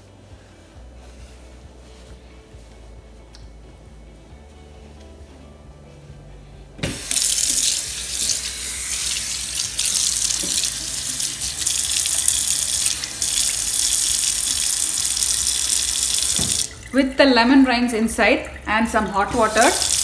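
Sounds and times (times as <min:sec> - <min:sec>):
tap water splashing into sink: 0:09.6 - 0:13.5, 0:14.1 - 0:17.0.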